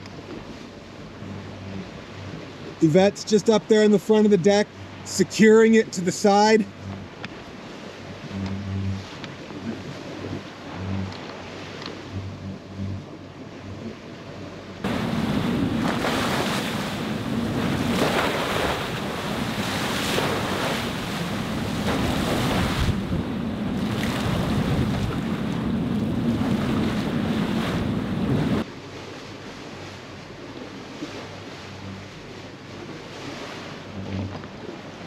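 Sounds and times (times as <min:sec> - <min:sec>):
waves rushing and splashing: 0:00.0 - 0:35.0
wind blowing across microphone: 0:14.8 - 0:28.7.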